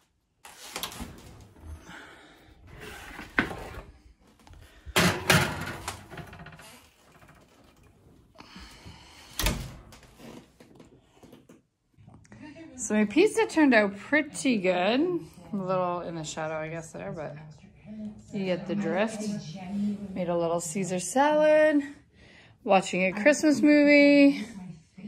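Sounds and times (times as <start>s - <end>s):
metal pan clattering on rack: 5.0s - 6.6s.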